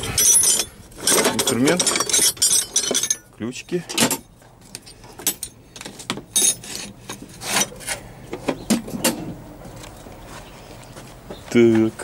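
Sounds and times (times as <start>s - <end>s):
metal spanners clinking: 0.0s - 8.0s.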